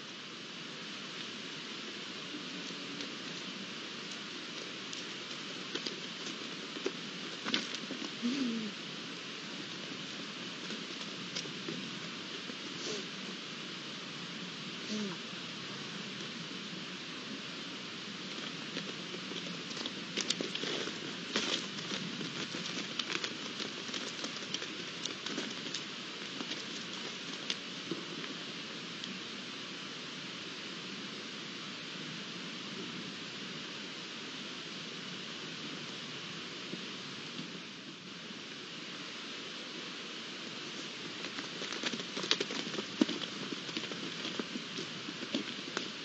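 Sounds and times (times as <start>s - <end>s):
outdoor night hiss: 0.0s - 46.0s
deer moving on dry ground: 1.1s - 8.5s, 9.1s - 13.4s, 18.0s - 29.2s, 40.5s - 46.0s
light irregular clicks and crackles: 2.6s - 8.2s, 18.2s - 28.4s, 40.8s - 45.9s.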